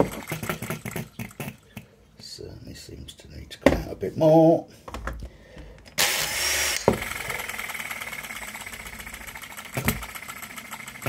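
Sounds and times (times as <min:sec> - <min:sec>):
model engine fast ticking: 0:00.0 - 0:01.6, 0:06.9 - 0:11.0.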